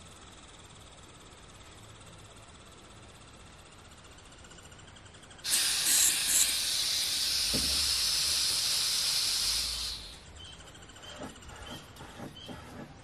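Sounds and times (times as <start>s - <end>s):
pressurised gas hissing: 5.4s - 10.4s
faint thump: 7.5s - 7.9s.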